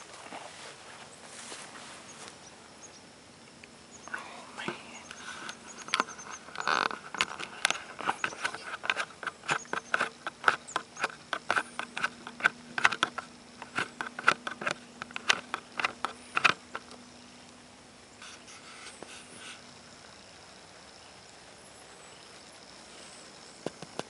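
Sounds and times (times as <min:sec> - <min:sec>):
low steady hum: 0:00.0 - 0:24.0
rapid sharp clicks: 0:05.0 - 0:17.0.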